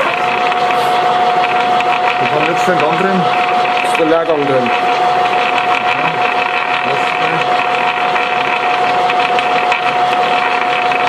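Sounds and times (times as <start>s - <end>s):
gearbox gear whine: 0.0s - 11.0s.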